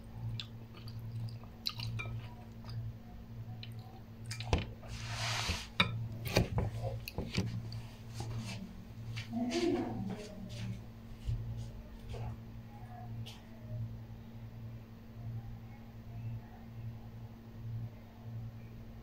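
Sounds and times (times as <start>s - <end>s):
steady low hum: 0.0s - 19.0s
chewing: 0.2s - 2.9s, 3.5s - 4.5s.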